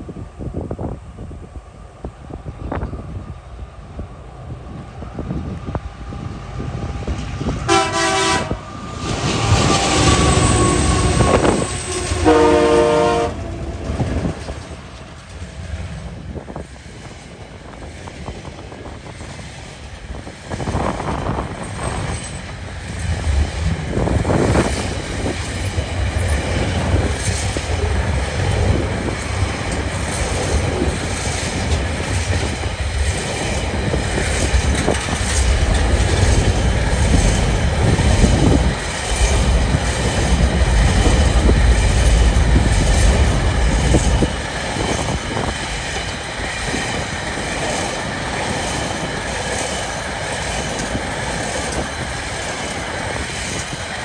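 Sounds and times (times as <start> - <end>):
train wheels rumbling on rails: 0.0 - 54.0
clickety-clack of wheels: 13.7 - 54.0.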